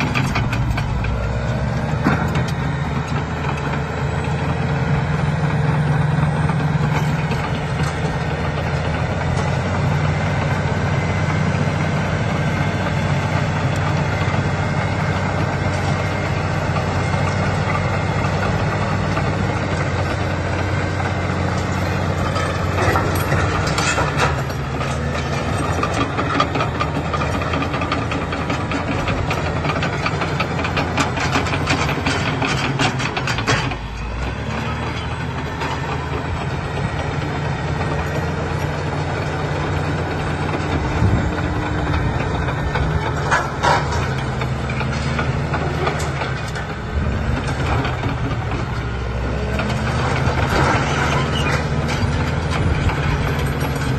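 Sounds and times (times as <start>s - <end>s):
diesel engine under load: 0.0s - 53.9s
steel tracks clanking: 0.0s - 53.9s.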